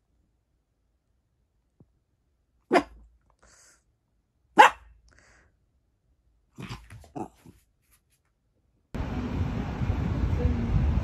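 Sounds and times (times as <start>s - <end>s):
small dog barking: 2.7s - 3.0s, 4.6s - 5.0s.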